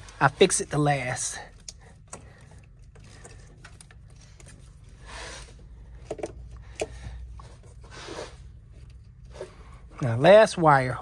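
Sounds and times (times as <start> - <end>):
soft rubbing and scraping: 7.2 - 10.3.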